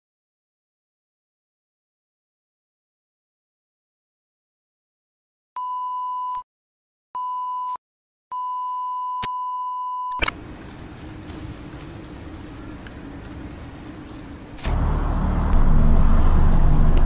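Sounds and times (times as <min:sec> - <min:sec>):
electronic beeps: 0:08.4 - 0:10.4
rushing rumbling noise: 0:10.3 - 0:17.0.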